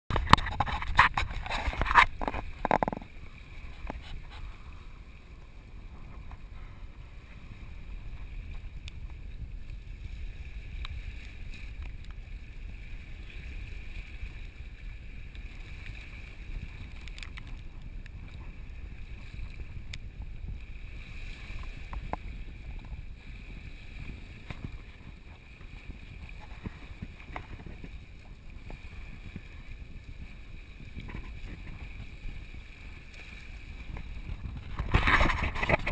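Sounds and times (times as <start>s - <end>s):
wind rumbling on microphone: 0.1s - 35.9s
light ticks: 11.7s - 12.2s.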